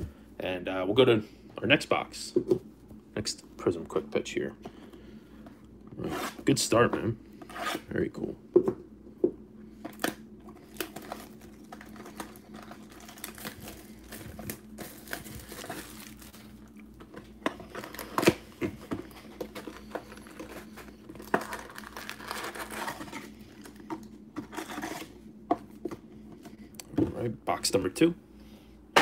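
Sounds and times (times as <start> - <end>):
plastic wrap crinkling and tearing: 9.9 - 17.0, 17.6 - 18.5, 19.1 - 23.8
cardboard rustling: 10.7 - 25.2.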